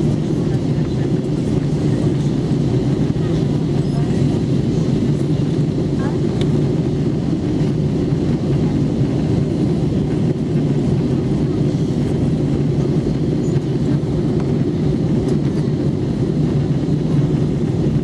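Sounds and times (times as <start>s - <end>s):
airplane cabin rumble: 0.0s - 18.0s.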